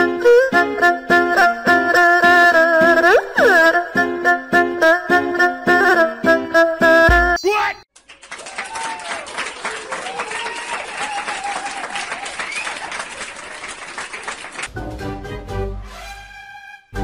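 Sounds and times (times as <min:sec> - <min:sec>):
crowd clapping: 0:07.9 - 0:14.7
crowd cheering: 0:08.0 - 0:14.7.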